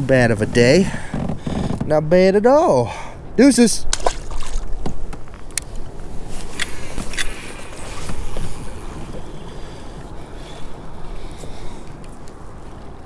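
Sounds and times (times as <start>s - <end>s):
water sloshing against kayak: 3.9s - 13.0s.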